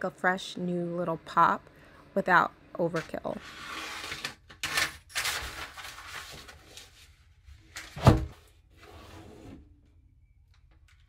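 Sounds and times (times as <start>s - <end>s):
rustling and scraping handling: 2.8s - 8.0s.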